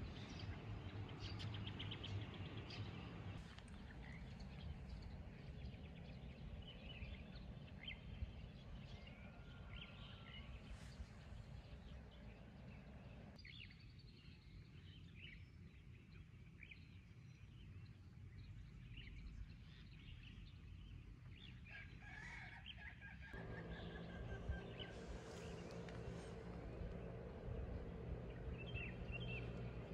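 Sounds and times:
low steady rumble: 0.0 - 13.6, 23.3 - 29.9
distant rooster crowing: 8.9 - 10.8, 21.7 - 29.9.

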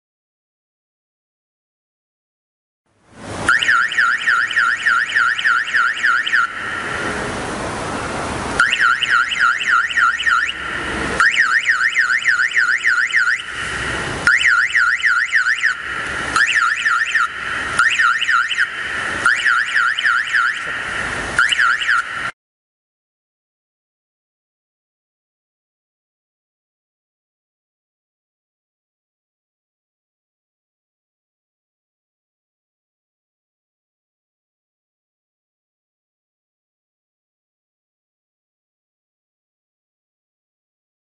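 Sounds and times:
motorcycle alarm siren: 3.4 - 7.4, 8.6 - 22.4.

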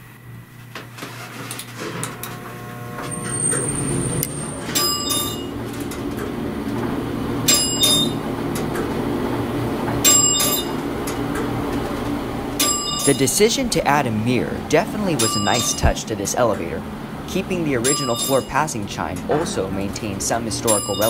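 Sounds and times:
elevator running rumble: 2.6 - 21.0
elevator floor chime: 3.0 - 5.6, 7.4 - 8.3, 10.0 - 10.9, 12.6 - 13.5, 15.2 - 16.1, 17.7 - 19.6, 20.4 - 21.0.

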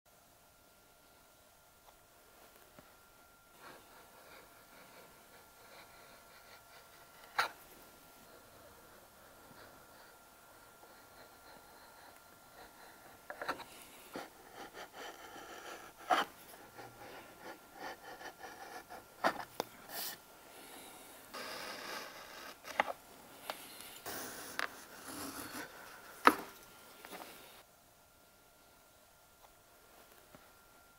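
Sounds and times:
blade scraping wood and plastic: 21.3 - 26.4.

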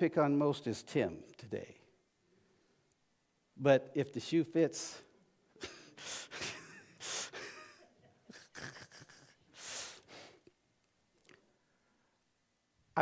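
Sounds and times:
soft breaths close to microphone: 9.2 - 10.5.

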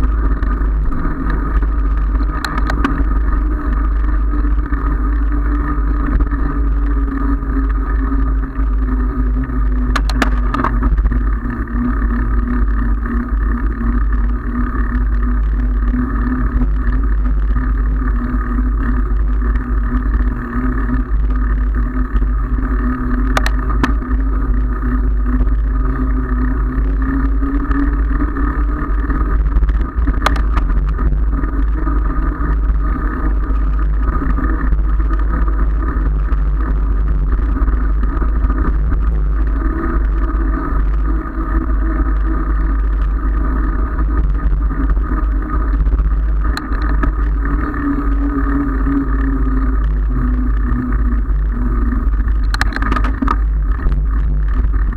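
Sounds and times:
tyre noise on asphalt: 0.0 - 54.9
sharp clicks: 1.2 - 3.1, 9.9 - 11.0, 23.2 - 24.0, 29.6 - 31.0, 52.4 - 53.4.

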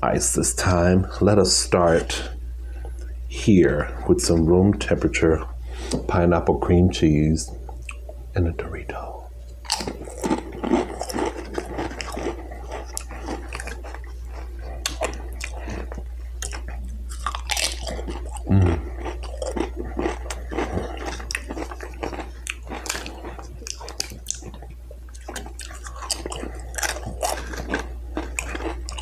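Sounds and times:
crunching and chewing chips: 9.6 - 29.0.

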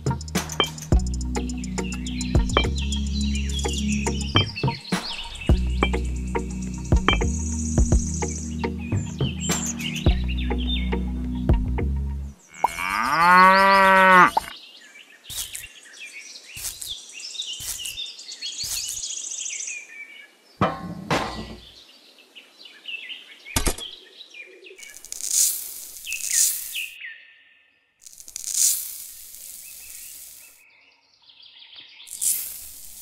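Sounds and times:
high chirps: 0.0 - 11.4, 18.6 - 19.2
cow mooing: 12.5 - 14.5.

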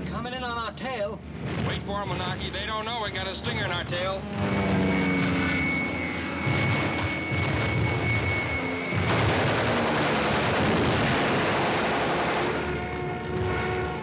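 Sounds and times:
aircraft engine drone: 0.0 - 14.0
aircraft exploding: 6.4 - 12.7
heavy machine-gun fire: 8.9 - 12.7.

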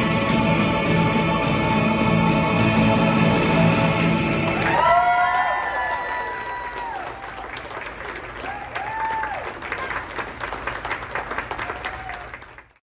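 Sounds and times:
small audience applauding: 4.3 - 12.8
short whoops of cheering: 4.6 - 7.5, 8.4 - 10.0, 11.6 - 12.4.

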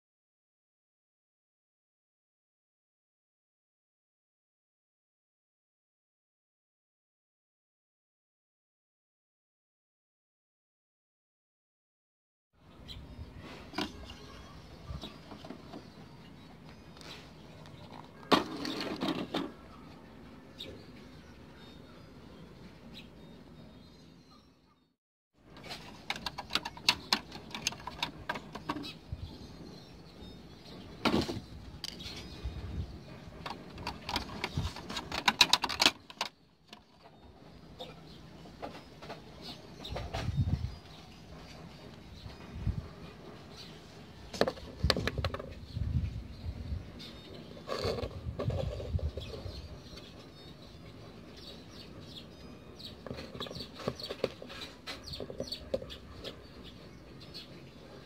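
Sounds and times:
plastic parts clicking and knocking: 25.6 - 28.9, 33.4 - 37.1, 44.3 - 45.6, 53.0 - 55.9
bird chirps: 25.8 - 58.0.

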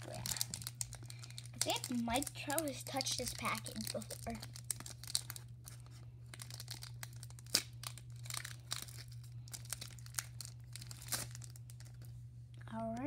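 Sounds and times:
card pack wrappers crinkling and tearing: 0.0 - 12.1.

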